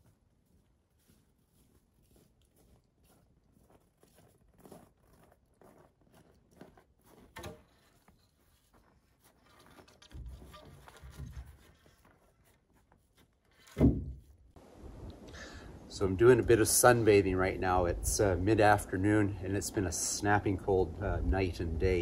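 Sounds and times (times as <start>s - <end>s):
footsteps crunching through snow: 0.0s - 13.7s.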